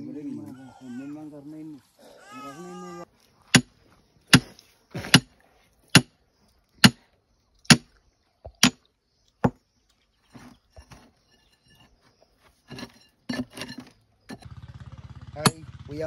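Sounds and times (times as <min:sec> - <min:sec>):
digging tool striking stony ground: 0:03.5 - 0:06.2, 0:06.8 - 0:07.0, 0:07.6 - 0:07.9, 0:08.6 - 0:08.8, 0:12.6 - 0:14.5.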